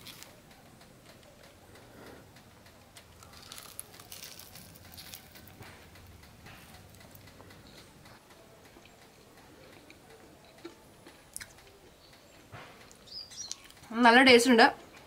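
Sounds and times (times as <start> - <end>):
crunching crispy snack: 0.0 - 0.4, 3.0 - 7.1.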